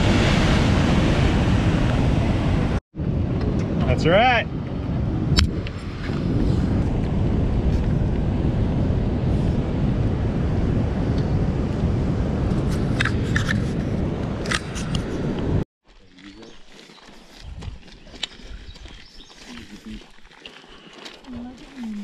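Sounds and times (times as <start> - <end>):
wind buffeting microphone: 0.0 - 15.6, 17.2 - 20.0.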